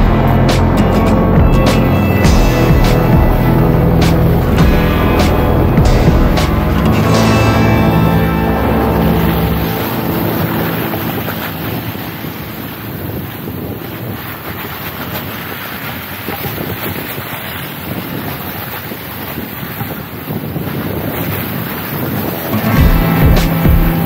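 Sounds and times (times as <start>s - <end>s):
vehicle road noise: 0.0s - 17.6s
wind rushing over microphone: 0.0s - 24.0s.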